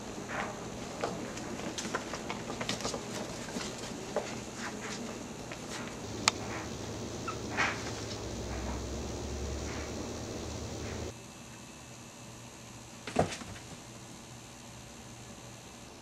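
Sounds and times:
puppies scratching: 0.4s - 11.1s.

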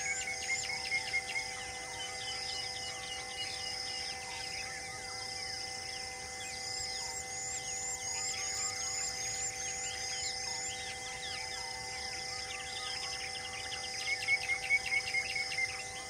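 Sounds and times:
insects droning: 0.0s - 16.0s.

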